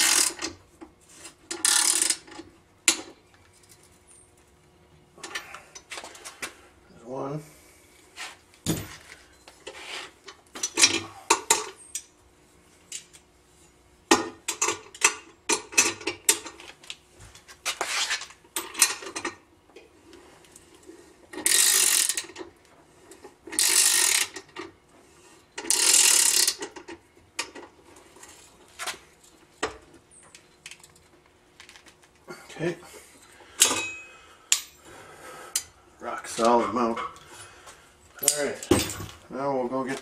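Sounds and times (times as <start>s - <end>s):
ratchet wrench clicking: 0.0s - 0.5s, 1.6s - 2.3s, 21.4s - 22.4s, 23.6s - 24.4s, 25.6s - 26.7s.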